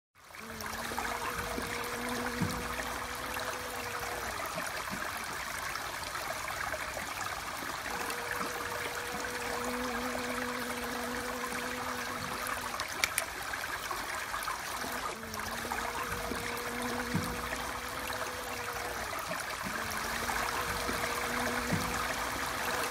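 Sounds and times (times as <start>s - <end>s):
running water: 0.2s - 22.9s
low even hum: 0.4s - 4.7s, 14.8s - 22.9s.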